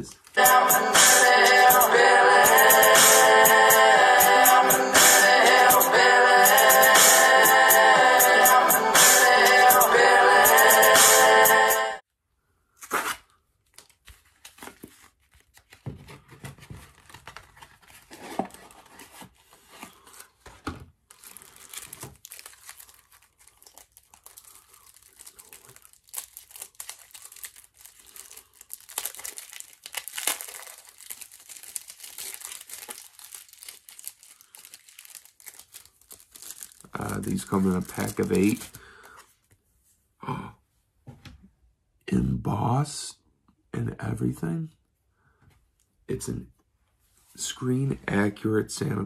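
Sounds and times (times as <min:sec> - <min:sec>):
packaging crinkling and tearing: 0:12.8 - 0:15.8, 0:16.6 - 0:39.2.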